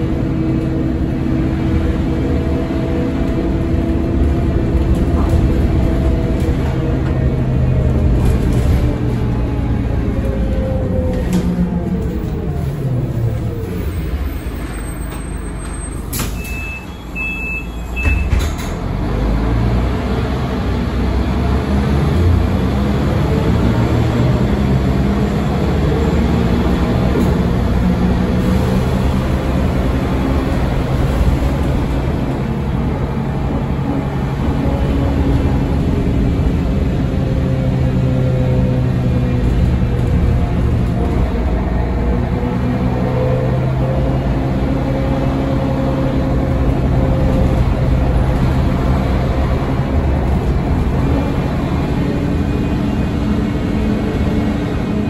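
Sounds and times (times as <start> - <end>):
bus engine: 0.0 - 55.0
short beeps: 16.4 - 18.4.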